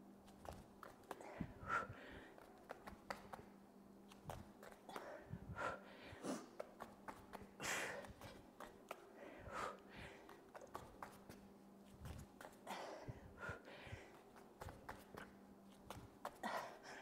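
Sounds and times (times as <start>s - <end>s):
faint steady hum: 0.0s - 17.0s
hands and feet tapping on mat: 0.2s - 1.4s, 2.4s - 3.5s, 4.1s - 5.2s, 6.6s - 9.1s, 10.1s - 12.8s, 13.5s - 16.6s
woman breathing hard: 1.1s - 2.6s, 4.7s - 11.0s, 12.4s - 15.3s, 16.2s - 17.0s.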